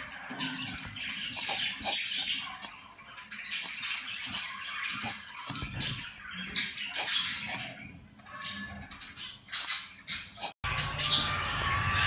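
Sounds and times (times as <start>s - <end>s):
chicks sharp chirps: 0.0s - 12.0s
chicks raspy begging calls: 1.2s - 2.9s.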